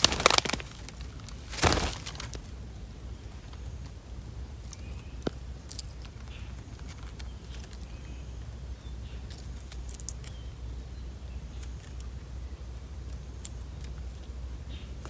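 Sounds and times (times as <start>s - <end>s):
low steady rumble: 0.0s - 15.0s
light clicks and rustles: 4.6s - 8.1s.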